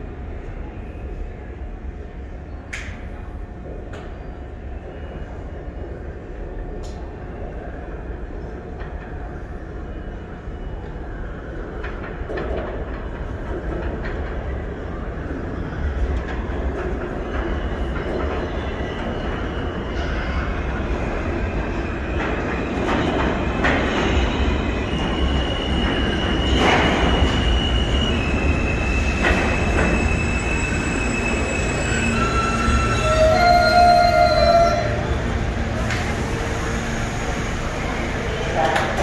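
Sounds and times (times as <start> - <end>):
subway train rumbling: 0.0 - 39.0
high wheel squeal: 25.2 - 35.2.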